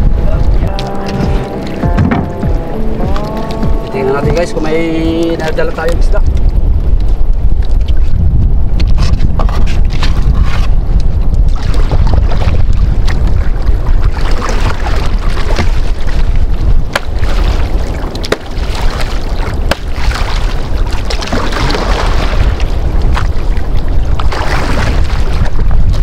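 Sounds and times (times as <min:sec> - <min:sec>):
wind rumble on microphone: 0:00.0 - 0:26.0
paddle splashing water: 0:00.3 - 0:05.6, 0:08.8 - 0:26.0
sharp knocks on canoe: 0:01.1 - 0:03.8, 0:16.9 - 0:17.3, 0:19.7 - 0:19.9.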